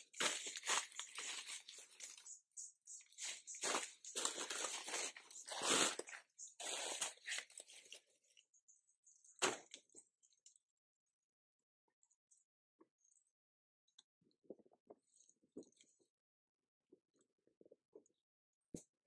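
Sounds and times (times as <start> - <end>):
banana leaves rustling and tearing: 0.0 - 2.3, 3.1 - 8.1.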